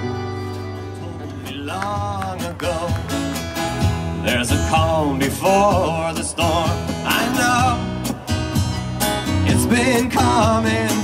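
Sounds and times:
accordion: 0.0s - 11.0s
electric bass: 0.0s - 11.0s
strummed acoustic guitar: 0.0s - 11.0s
man singing: 1.0s - 3.4s, 4.1s - 8.2s, 9.2s - 11.0s.

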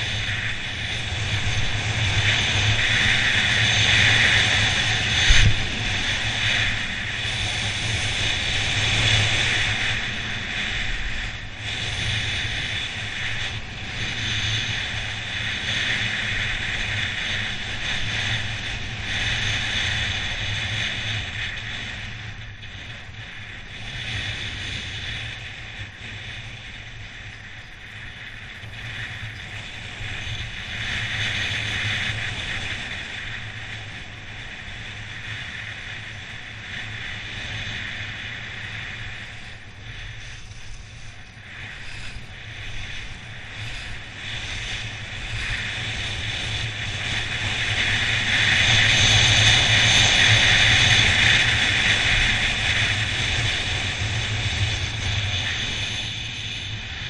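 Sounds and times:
wind rumble on microphone: 0.0s - 57.0s
skis scraping snow: 27.1s - 56.4s.

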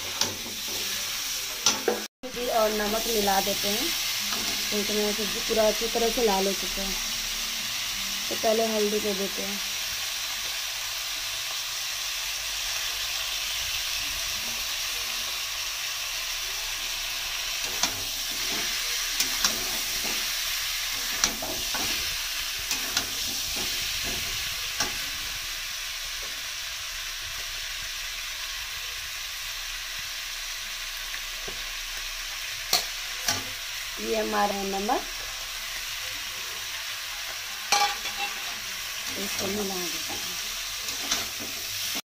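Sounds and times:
meat sizzling in hot oil: 0.0s - 42.0s
spatula scraping a pan: 37.7s - 41.9s.

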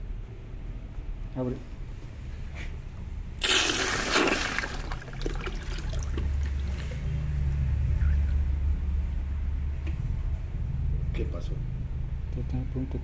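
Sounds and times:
pump humming: 3.4s - 8.7s.

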